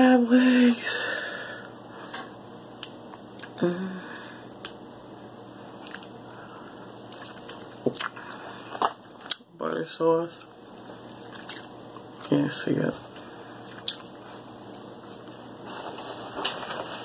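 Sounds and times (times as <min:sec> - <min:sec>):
person eating crab meat: 0:05.7 - 0:09.5, 0:11.2 - 0:12.2, 0:13.6 - 0:14.2.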